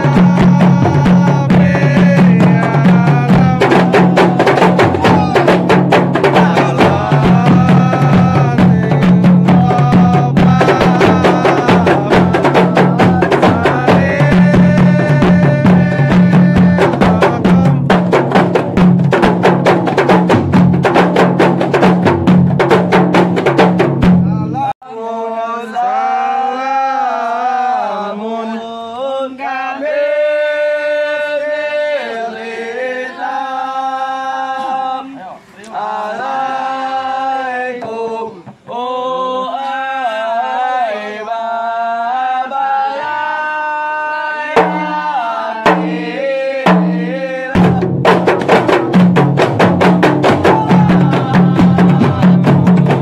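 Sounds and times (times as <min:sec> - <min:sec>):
men chanting: 0:00.0 - 0:20.3, 0:23.2 - 0:53.0
frame drums in fast rhythm: 0:00.0 - 0:24.7, 0:44.6 - 0:53.0.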